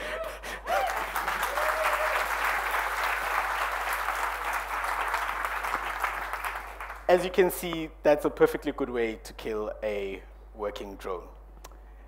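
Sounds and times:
audience applauding: 0:00.6 - 0:07.1.

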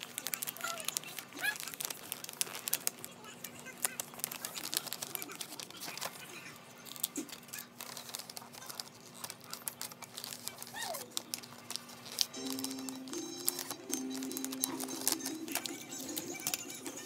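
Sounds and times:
paper bag crinkling: 0:00.0 - 0:17.0
music: 0:12.3 - 0:17.0.

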